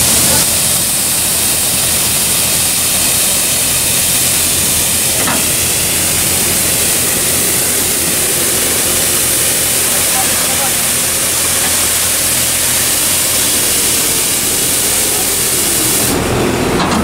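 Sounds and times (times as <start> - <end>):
broom bristles hissing on asphalt: 0.0 - 16.2
diesel engine humming: 0.0 - 17.0.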